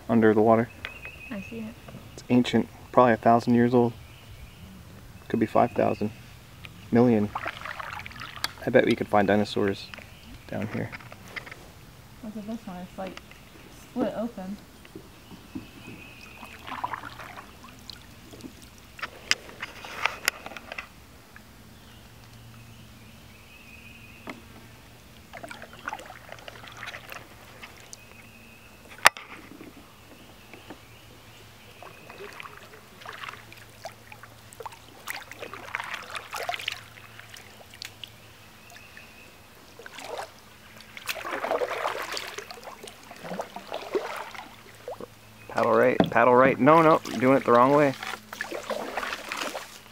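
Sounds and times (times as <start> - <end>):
paddle splashing in water: 7.2 - 9.0, 15.5 - 20.9, 25.2 - 49.9.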